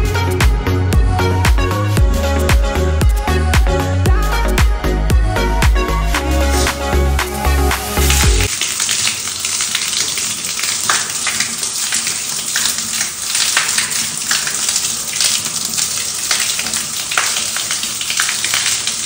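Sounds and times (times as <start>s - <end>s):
water drips and trickles: 6.2s - 19.0s
water splashing into stone basin: 6.2s - 19.0s.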